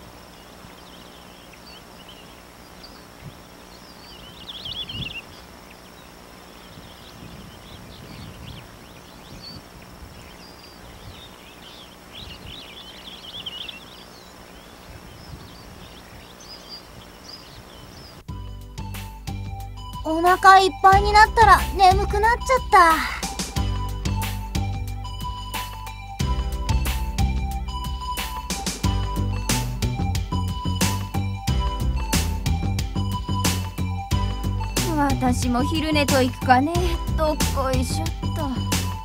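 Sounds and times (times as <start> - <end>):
rapid bird chirping: 0.0 - 18.6
high insect drone: 0.0 - 39.0.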